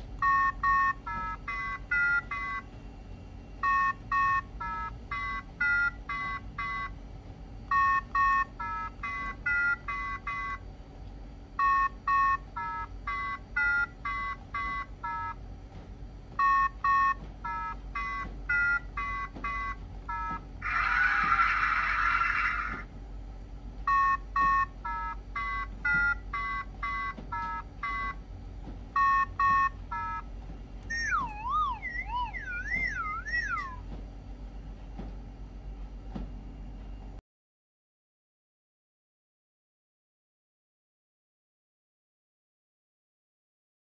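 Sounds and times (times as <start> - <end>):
short electronic beeps: 30.9 - 33.8
warbling electronic tone: 30.9 - 33.8.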